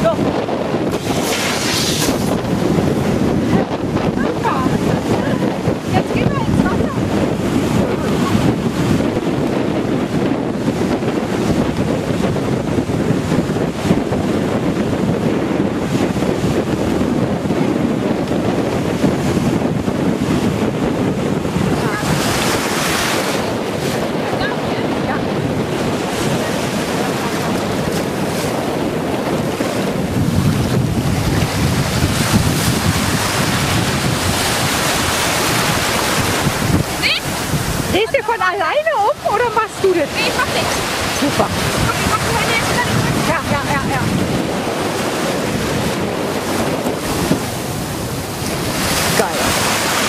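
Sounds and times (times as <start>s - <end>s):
sea surf washing through shallow water: 0.0s - 50.0s
wind buffeting microphone: 0.0s - 50.0s.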